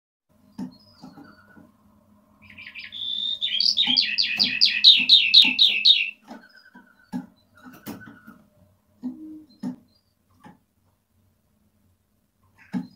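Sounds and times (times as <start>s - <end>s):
skylark singing: 2.4s - 6.2s.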